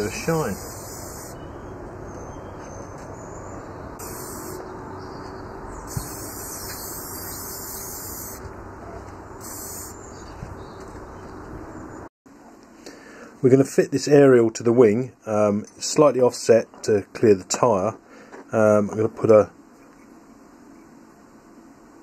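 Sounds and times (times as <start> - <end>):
aerosol spray can hissing: 0.0 - 1.4, 4.0 - 4.6, 5.9 - 8.4, 9.4 - 10.0.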